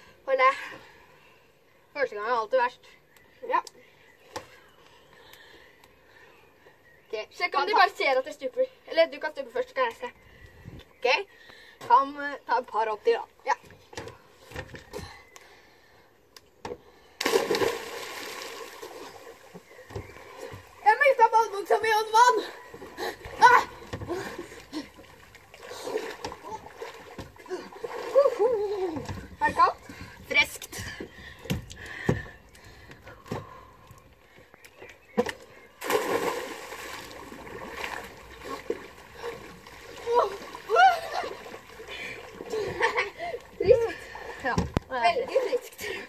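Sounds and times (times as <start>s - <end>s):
loud splash into water: 17.2s - 18.8s, 35.8s - 37.2s
person splashing into water: 17.2s - 19.4s, 35.8s - 42.5s
water churning: 17.2s - 21.3s, 22.4s - 30.2s, 35.8s - 45.6s.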